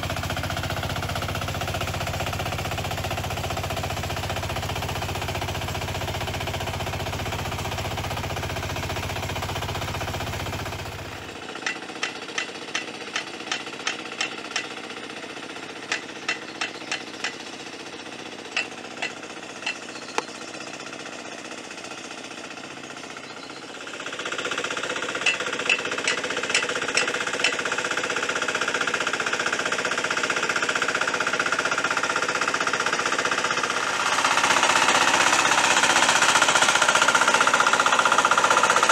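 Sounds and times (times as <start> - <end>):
diesel engine running: 0.0 - 38.9
sharp clacking: 11.6 - 14.8, 15.8 - 17.5, 18.5 - 20.3, 25.1 - 27.8.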